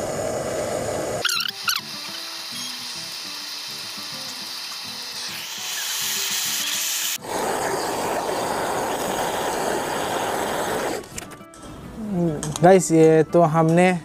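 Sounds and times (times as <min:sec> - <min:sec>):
blowtorch flame hissing: 0:00.0 - 0:11.2
faint background music: 0:11.1 - 0:14.0.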